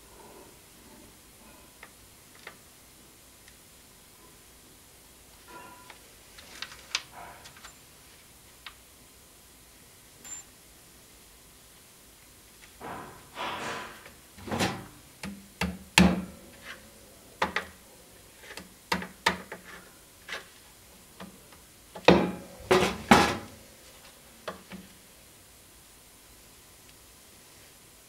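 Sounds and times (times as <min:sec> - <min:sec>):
handling noises: 0:16.1 - 0:25.0.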